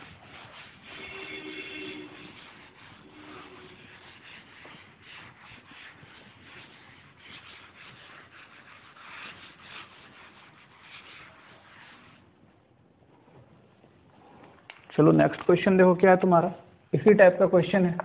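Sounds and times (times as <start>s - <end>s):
cloth rubbing on chalkboard: 0.0s - 13.6s.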